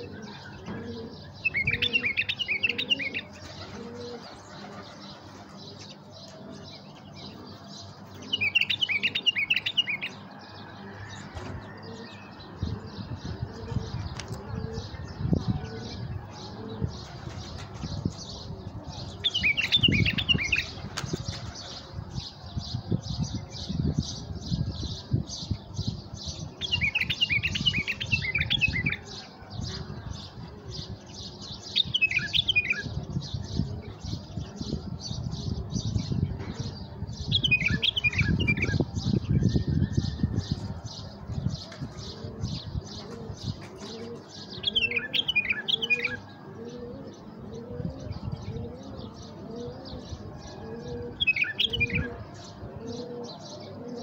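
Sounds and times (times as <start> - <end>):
bulbuls warbling: 42.0 - 54.0.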